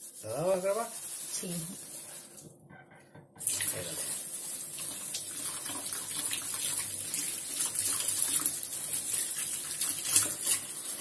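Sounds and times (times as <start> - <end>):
hands rubbing under water: 0.0 - 2.4
tap water splashing into sink: 2.4 - 4.1, 4.7 - 11.0.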